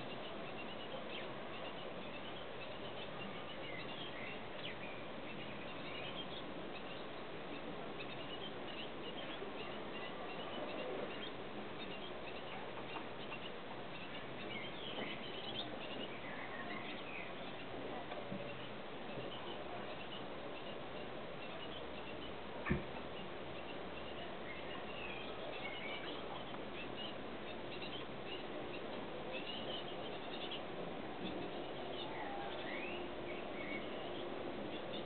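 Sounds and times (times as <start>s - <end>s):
steady background hiss: 0.0s - 35.0s.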